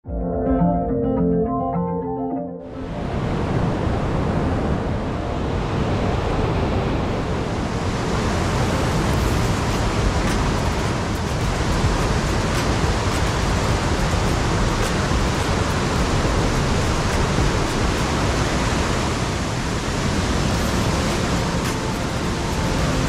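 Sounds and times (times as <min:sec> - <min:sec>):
river water rushing over rocks: 0:05.4 - 0:23.0.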